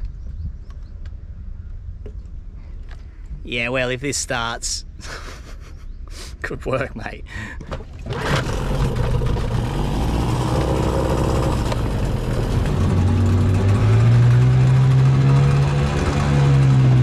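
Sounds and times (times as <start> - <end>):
outboard motor running: 7.5 - 17.0.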